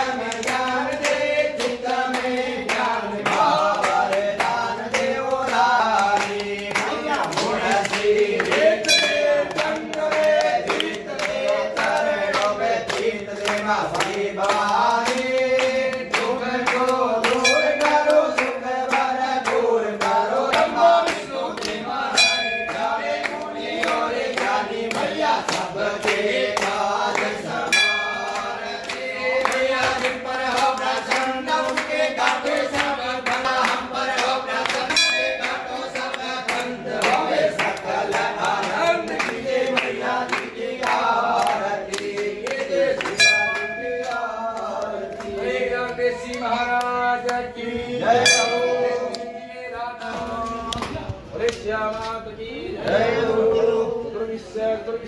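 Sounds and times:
hand-clapping in time: 0.0s - 49.4s, 50.0s - 52.2s
group singing devotional song: 0.0s - 55.0s
temple bell ringing: 8.7s - 10.0s, 17.2s - 18.6s, 22.1s - 23.4s, 27.6s - 29.6s, 34.8s - 36.1s, 43.1s - 44.4s, 48.2s - 49.5s.

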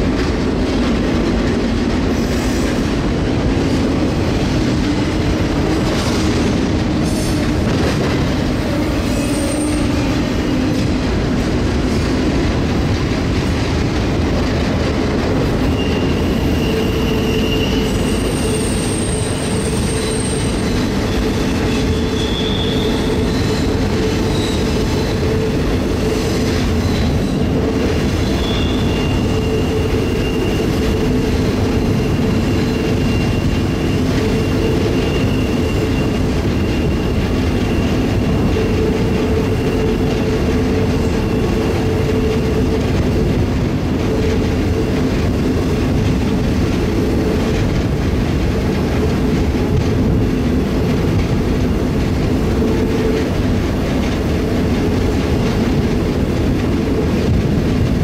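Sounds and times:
train wheels rumbling on rail: 0.0s - 58.0s
high wheel squeal: 8.6s - 10.7s, 15.5s - 43.4s.

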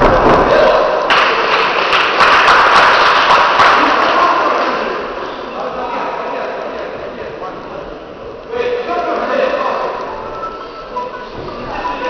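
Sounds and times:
spectators shouting and clapping: 0.0s - 4.9s
sharp claps: 1.1s - 4.8s.

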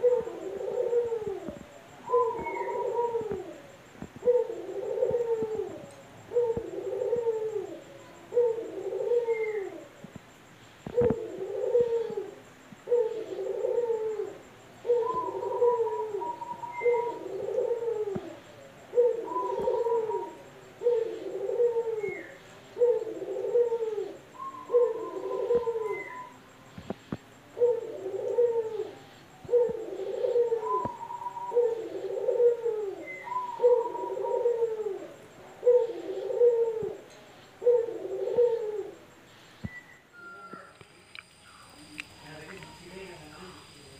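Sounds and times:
dove cooing: 0.0s - 10.1s, 10.8s - 40.8s
faint clicks: 40.5s - 43.2s.

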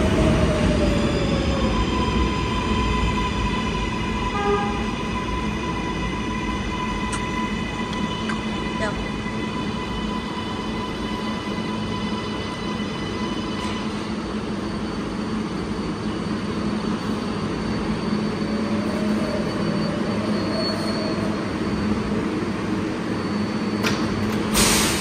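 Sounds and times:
subway train rumbling and braking: 0.0s - 25.0s
air brake hiss: 24.5s - 25.0s.

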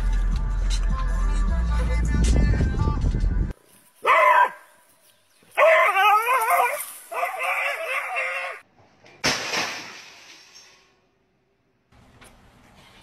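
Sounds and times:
dog whining yelps: 4.0s - 4.6s, 5.6s - 8.6s.

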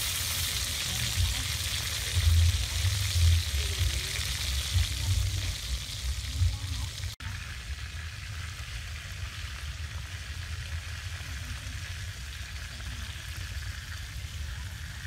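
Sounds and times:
low rumble: 0.0s - 8.3s
chicken sizzling in hot oil: 0.0s - 15.0s.

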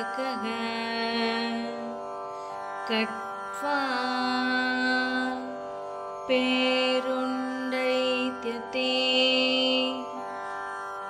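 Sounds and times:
person chanting a verse: 0.0s - 1.9s, 6.3s - 10.0s.

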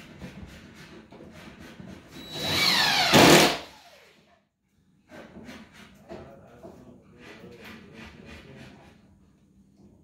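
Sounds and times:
impact driver driving screw: 2.3s - 3.8s.

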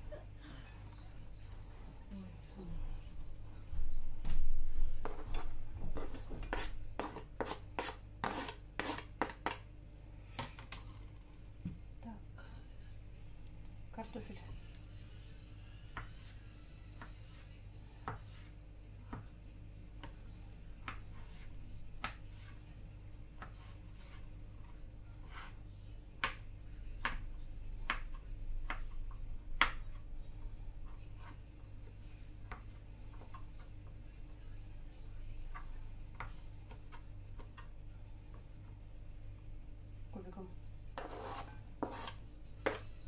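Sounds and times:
knife chopping on cutting board: 41.0s - 42.8s.

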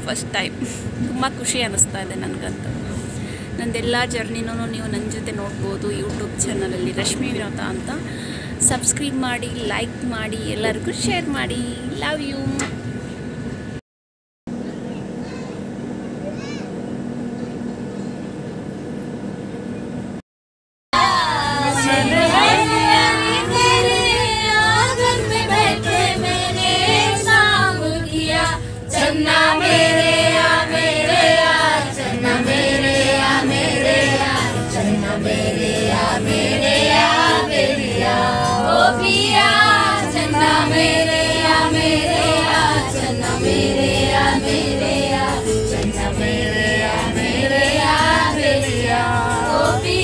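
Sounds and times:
song with singing voices: 21.0s - 50.0s.

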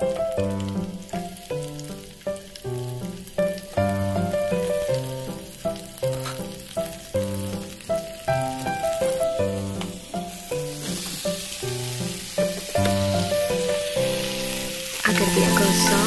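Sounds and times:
oil sizzling in a wok: 0.0s - 16.0s
melodic background music: 12.4s - 16.0s.

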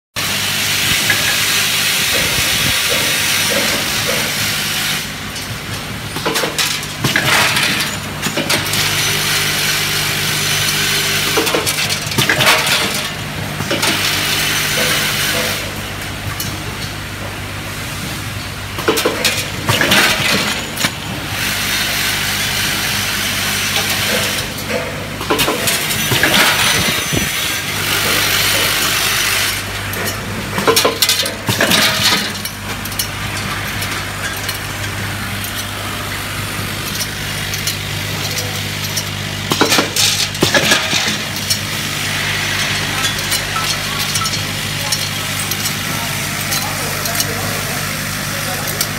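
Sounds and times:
vibratory feeders humming: 0.2s - 48.9s
loud metallic clatter: 0.8s - 16.6s, 18.8s - 47.4s
metal parts rattling: 23.7s - 41.7s, 42.5s - 45.8s.

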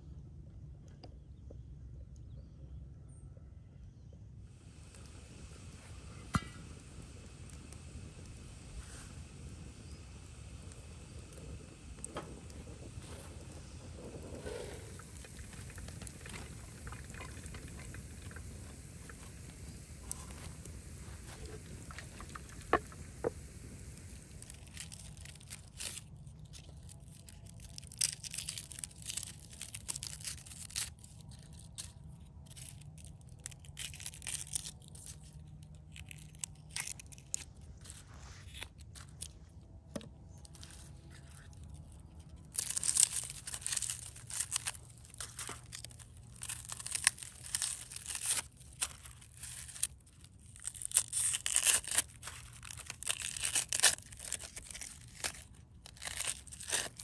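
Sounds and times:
onion skins crackling and tearing: 4.8s - 57.0s.

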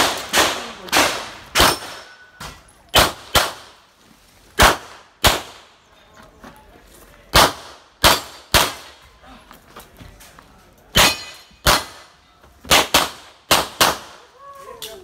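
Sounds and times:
gunshots: 0.0s - 2.2s, 2.9s - 3.8s, 4.6s - 5.7s, 7.3s - 9.0s, 11.0s - 12.1s, 12.7s - 14.2s
bullets ringing on steel targets: 1.5s - 3.0s, 10.9s - 13.0s.

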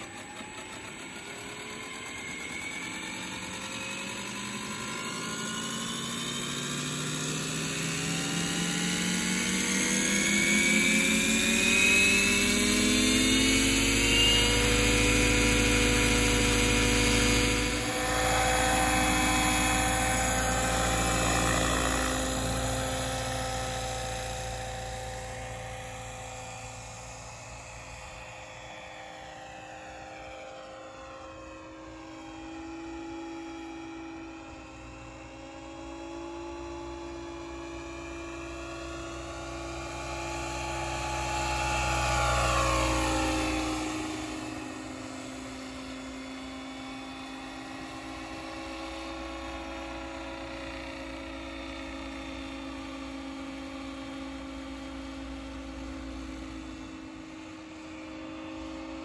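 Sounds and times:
model helicopter motor whine: 0.0s - 59.0s.

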